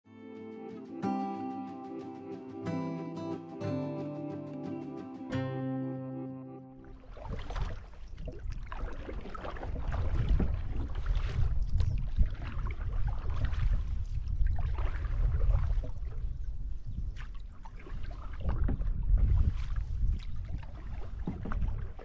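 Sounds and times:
paddle strokes in water: 6.8s - 22.0s
wind on microphone: 7.1s - 22.0s.

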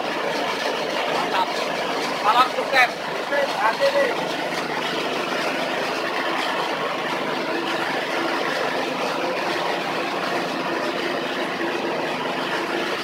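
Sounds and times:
small petrol engine idling: 0.0s - 13.0s.

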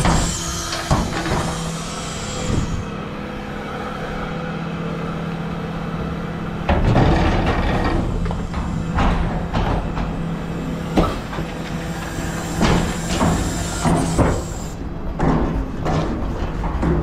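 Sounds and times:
hydraulic bin lift working: 0.0s - 16.8s
truck engine hum: 1.8s - 15.2s.

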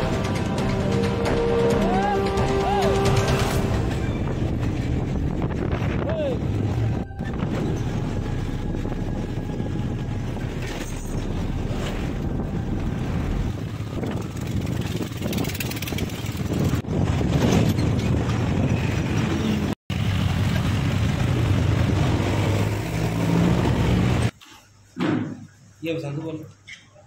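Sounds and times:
wind rushing over microphone: 3.7s - 22.8s
motorcycle engine running: 8.9s - 17.3s.

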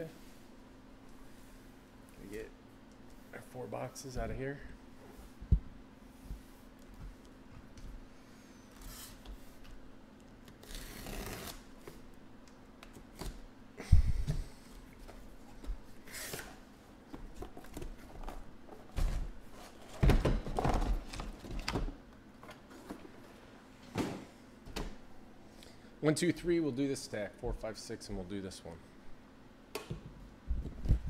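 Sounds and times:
tape being slit: 10.4s - 11.7s
boxes knocking and thumping: 18.8s - 21.9s.

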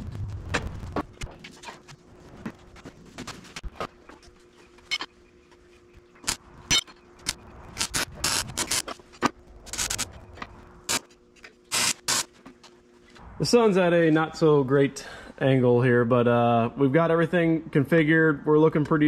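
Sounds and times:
faint steady hum: 0.0s - 19.0s
arc welding crackling bursts: 7.7s - 8.8s, 9.7s - 10.1s, 11.7s - 12.3s.

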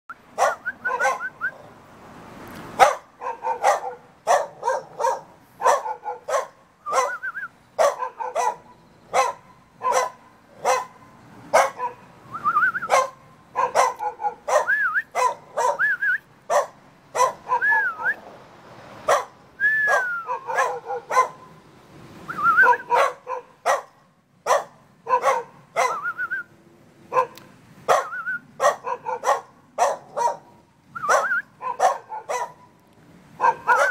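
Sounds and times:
dog barking: 0.4s - 1.3s, 2.8s - 7.2s, 7.8s - 12.1s, 12.9s - 15.9s, 16.5s - 18.0s, 19.1s - 21.5s, 22.6s - 26.1s, 27.1s - 32.7s, 33.4s - 33.9s
dog whining yelps: 0.4s - 1.6s, 2.8s - 10.9s, 12.8s - 18.2s, 19.1s - 21.4s, 22.6s - 23.9s, 24.5s - 26.3s, 27.9s - 30.4s, 31.0s - 32.6s, 33.4s - 33.9s.

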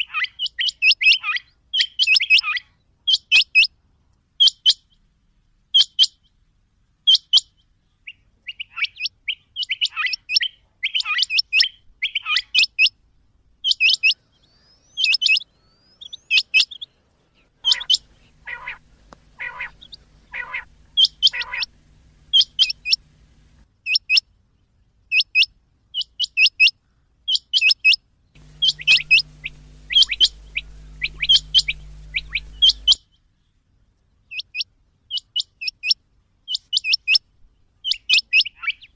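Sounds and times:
lower harsh bird calls: 13.6s - 23.6s, 28.4s - 33.0s
low hum: 14.2s - 23.6s, 28.4s - 33.0s
faint hiss: 14.2s - 23.7s, 28.4s - 33.5s
quail calling high double notes: 17.6s - 23.6s, 28.4s - 33.0s.

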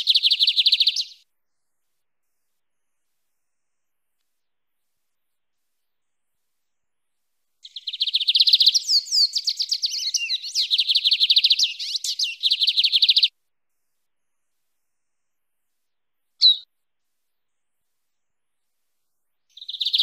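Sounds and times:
songbird singing fast trills: 0.0s - 1.2s, 7.6s - 13.3s, 16.4s - 16.7s, 19.5s - 20.0s.

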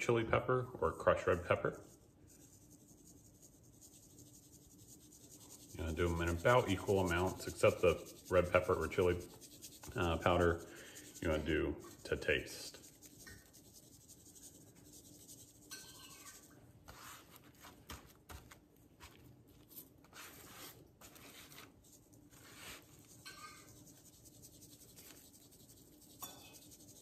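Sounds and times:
hand rubbing meat: 1.0s - 27.0s
seasoning shaken from shaker: 1.8s - 17.3s, 21.2s - 27.0s.

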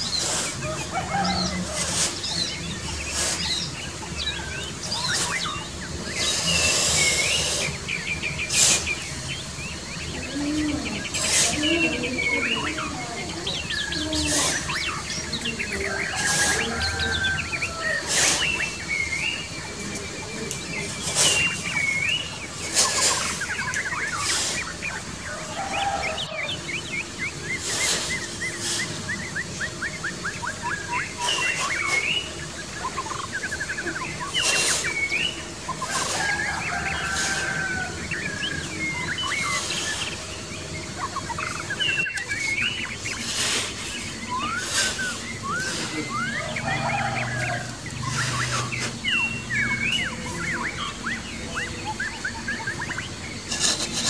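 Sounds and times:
trowel scraping sand: 0.0s - 2.4s, 8.5s - 8.9s, 11.2s - 12.5s, 43.2s - 46.0s
birds chirping and trilling: 0.0s - 54.0s.

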